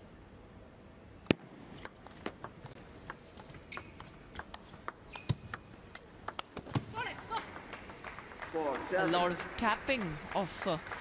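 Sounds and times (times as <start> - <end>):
table tennis ball clicks: 1.3 - 8.6.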